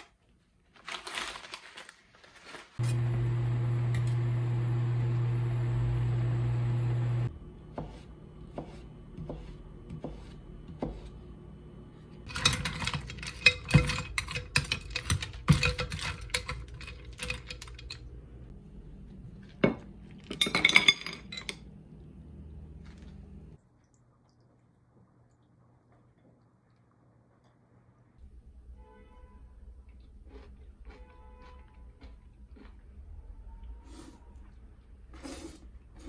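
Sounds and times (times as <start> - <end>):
steady hum: 2.8 - 12.2
ice cubes clinking against pot: 12.3 - 18.0.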